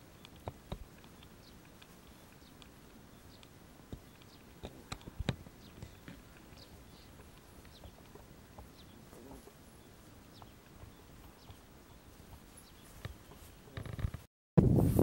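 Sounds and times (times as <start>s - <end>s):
irregular clicks and knocks: 0.0s - 9.0s.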